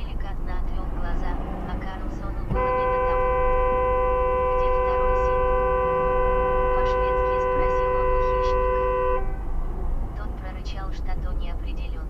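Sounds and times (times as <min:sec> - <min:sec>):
car horn blast: 0:02.5 - 0:09.5.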